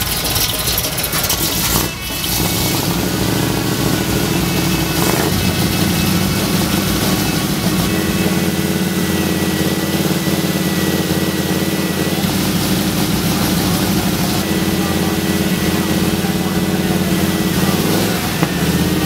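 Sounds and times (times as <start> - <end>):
vee eight engine idling: 0.0 - 19.0.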